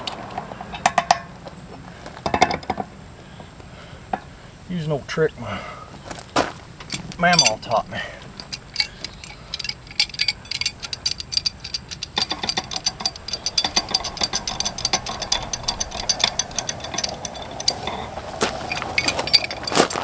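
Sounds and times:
mid-pitched hum: 0.0 - 20.0
pipe wrench clicking and rattling: 0.1 - 1.3, 2.2 - 2.9, 6.8 - 20.0.

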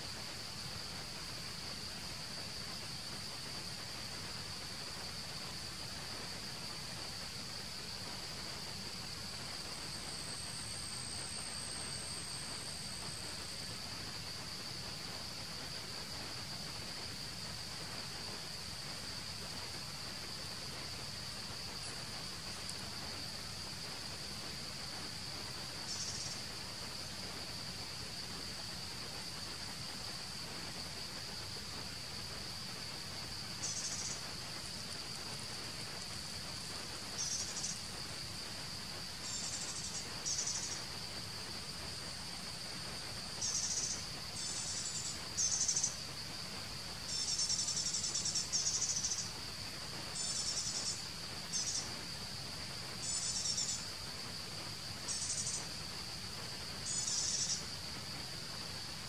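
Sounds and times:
high insect drone: 0.0 - 59.0
insect trilling: 25.8 - 26.5, 33.2 - 38.5, 39.2 - 41.1, 43.3 - 46.1, 47.0 - 49.5, 50.1 - 52.0, 53.0 - 53.9, 55.1 - 55.7, 56.8 - 57.7.

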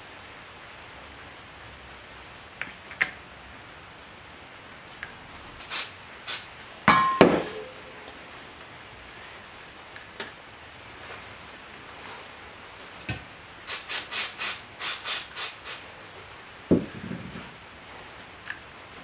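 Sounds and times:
ringing metal clank: 6.9 - 8.1.

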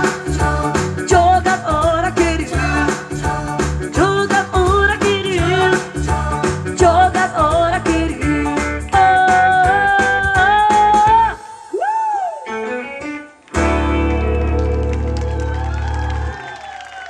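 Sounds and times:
person singing: 0.0 - 12.7
live pop band playing: 0.0 - 15.4.

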